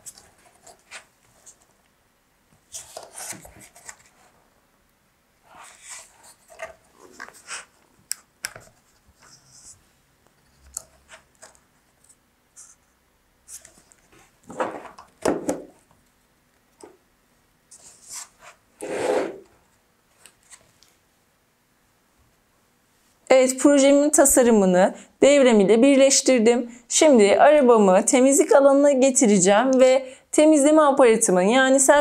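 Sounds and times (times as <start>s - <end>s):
scraping rubs on cardboard: 5.5s - 7.8s, 17.7s - 19.5s.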